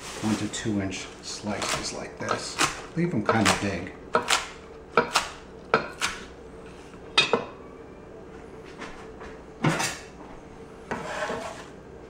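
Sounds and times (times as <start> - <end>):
knife chopping on wooden board: 1.6 - 6.2.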